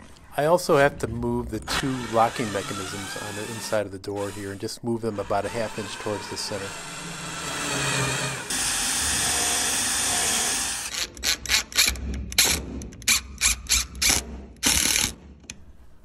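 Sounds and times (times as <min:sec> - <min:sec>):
cordless drill driving screw: 0:05.5 - 0:15.1.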